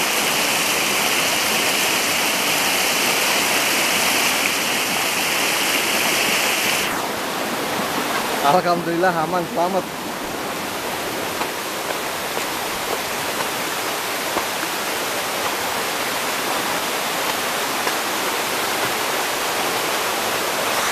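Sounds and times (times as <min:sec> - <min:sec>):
fast stream rushing: 0:00.0 - 0:20.9.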